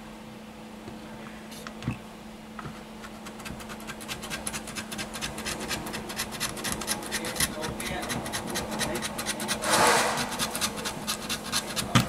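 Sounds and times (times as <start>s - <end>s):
hand tool scraping plastic: 2.6s - 12.0s.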